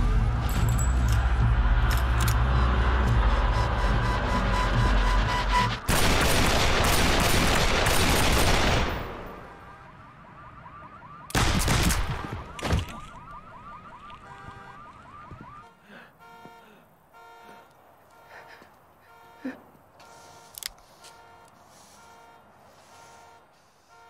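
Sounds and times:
car alarm chirping: 12.0s - 24.0s.

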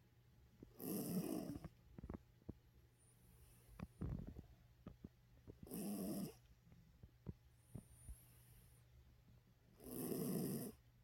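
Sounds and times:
dog snoring: 0.7s - 2.1s, 5.6s - 6.5s, 9.8s - 10.8s.

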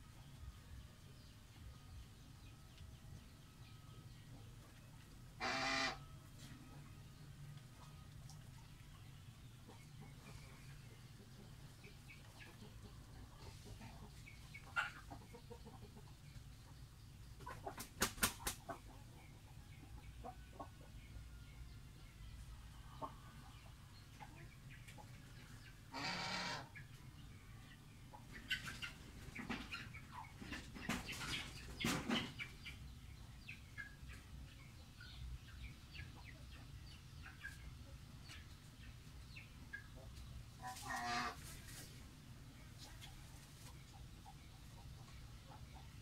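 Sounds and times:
low steady hum: 0.0s - 17.5s
poultry calling: 5.4s - 6.2s, 25.9s - 26.9s, 40.6s - 41.6s.

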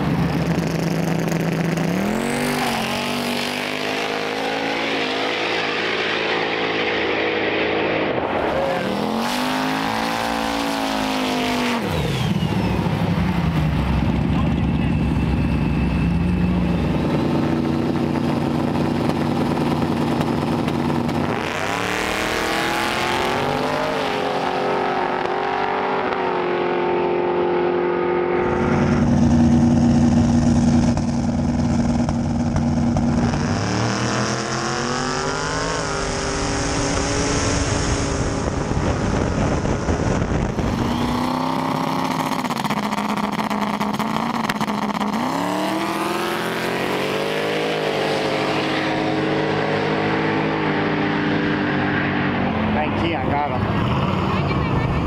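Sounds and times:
drag car engines revving at launch: 0.0s - 55.0s
drag car engines idling: 12.2s - 21.2s.

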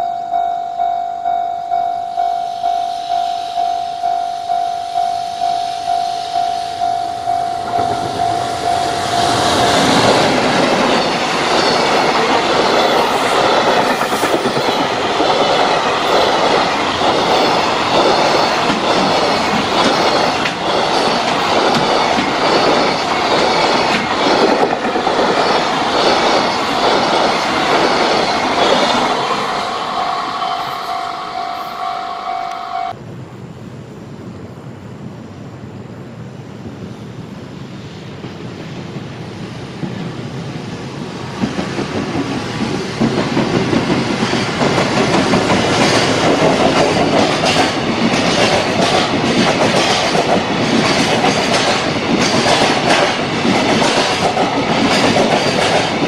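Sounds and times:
level crossing alarm ringing: 0.0s - 12.0s, 28.4s - 33.0s
train wheels clattering on rails: 6.8s - 30.0s, 38.1s - 56.0s.

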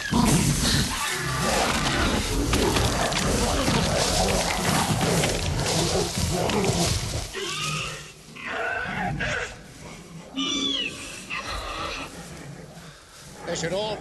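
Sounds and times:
creature snarling and thrashing: 0.0s - 8.0s.

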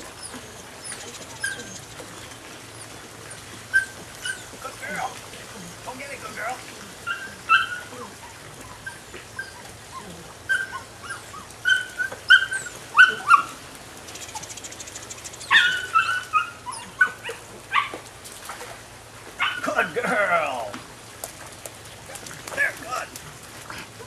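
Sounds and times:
puppy whining and yelping: 0.1s - 5.8s, 7.0s - 13.6s, 15.4s - 18.0s.

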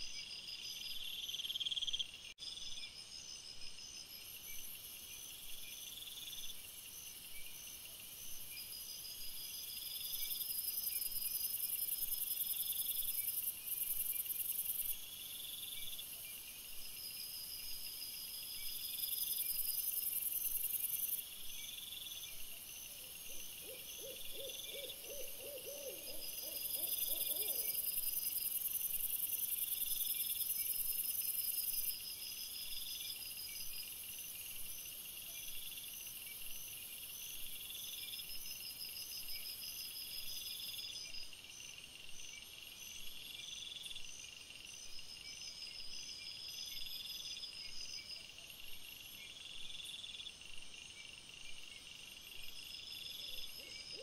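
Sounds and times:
night insects chirping: 0.0s - 54.0s
owl hooting: 23.6s - 27.8s.

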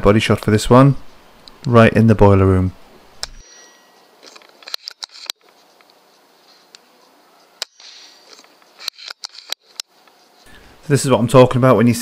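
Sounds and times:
air rifle shots and clicks: 4.2s - 5.5s, 7.6s - 9.9s.

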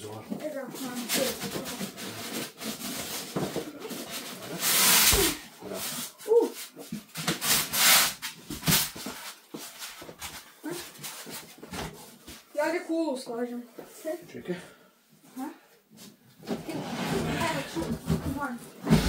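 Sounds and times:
foam squeaking against cardboard: 4.4s - 6.7s.

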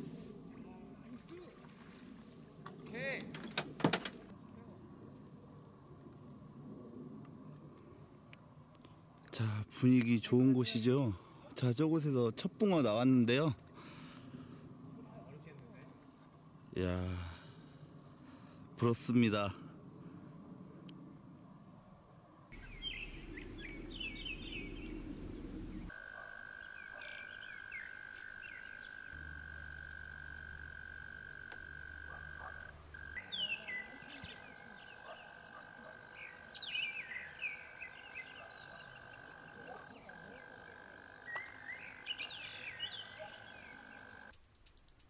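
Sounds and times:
frogs chirping: 22.5s - 44.3s.

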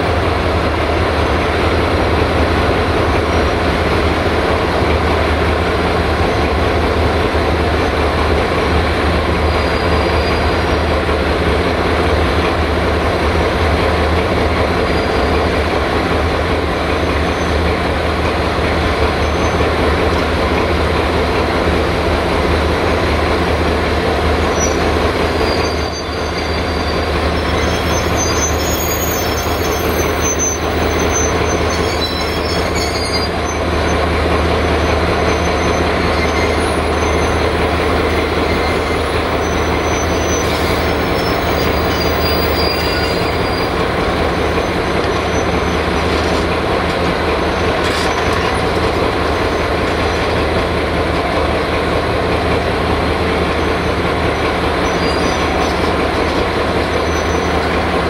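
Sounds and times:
train wheels clattering on rails: 0.0s - 58.0s
high-pitched wheel squeals: 9.4s - 10.8s, 24.4s - 34.0s, 34.7s - 46.4s, 54.8s - 57.7s.

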